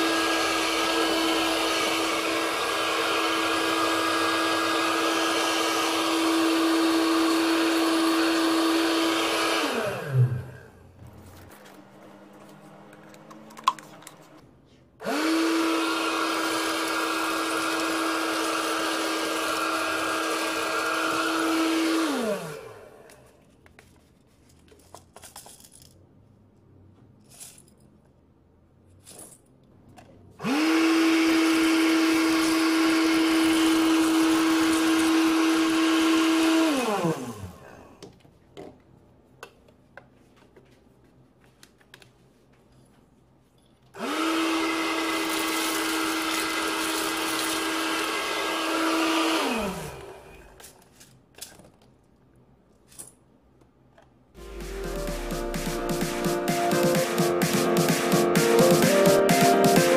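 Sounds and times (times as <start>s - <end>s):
vacuum motor whining: 0.0s - 14.3s, 15.0s - 23.1s, 30.4s - 37.9s, 44.0s - 50.6s.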